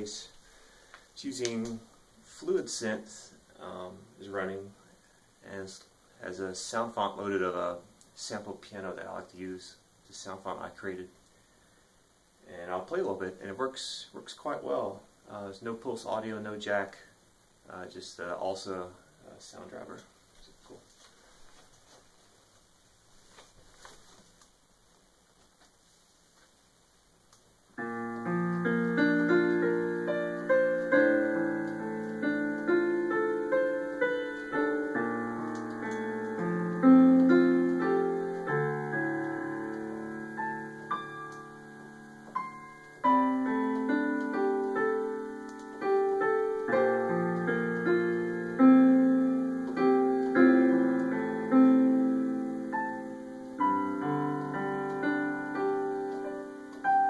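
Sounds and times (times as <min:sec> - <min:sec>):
piano chords and melody: 0:27.8 - 0:57.0.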